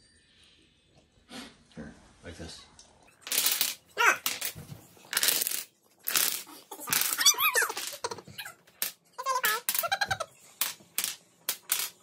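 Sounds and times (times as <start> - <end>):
toy blocks clattering on wooden floor: 3.1 - 12.0.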